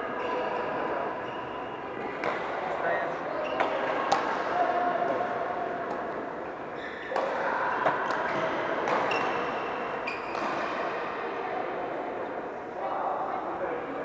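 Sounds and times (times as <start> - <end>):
shoes squeaking on court floor: 0.2 - 4.0, 6.7 - 7.2, 7.8 - 10.7.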